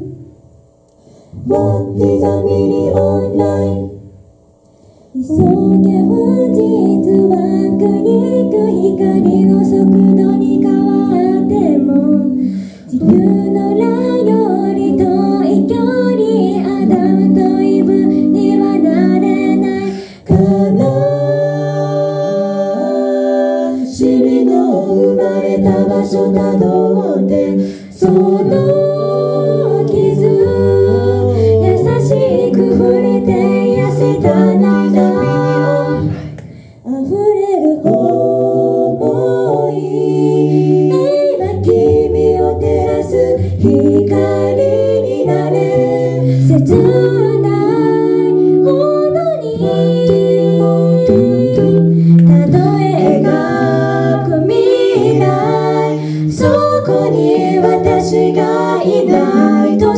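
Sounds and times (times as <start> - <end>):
a cappella group singing: 0.0 - 59.9
low bass voice: 34.4 - 36.3.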